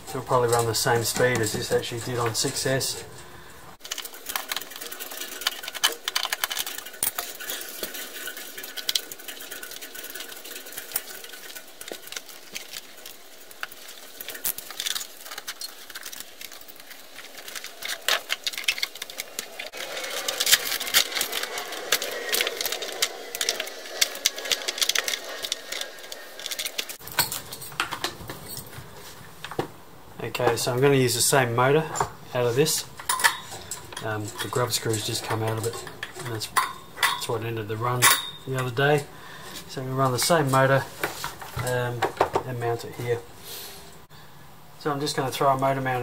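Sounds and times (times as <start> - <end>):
small hand tools clicking and rattling: 3.8 - 28.7, 32.4 - 39.0.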